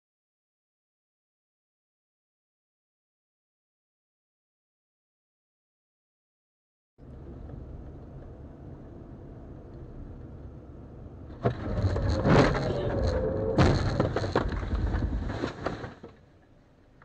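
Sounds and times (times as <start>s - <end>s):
car driving rumble: 7.0s - 17.0s
car crash impacts: 11.3s - 16.2s
wavering squeal: 11.6s - 13.9s.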